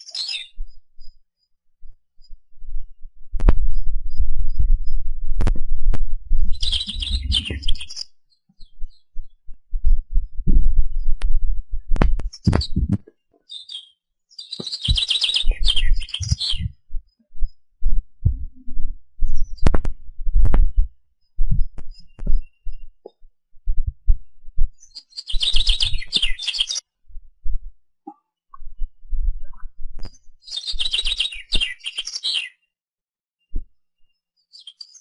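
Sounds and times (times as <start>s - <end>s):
songbird singing: 0.0s - 1.5s, 6.4s - 10.0s, 12.3s - 17.9s, 24.8s - 26.8s, 30.4s - 32.6s
wind buffeting microphone: 3.3s - 8.0s, 9.2s - 13.0s, 14.9s - 22.8s.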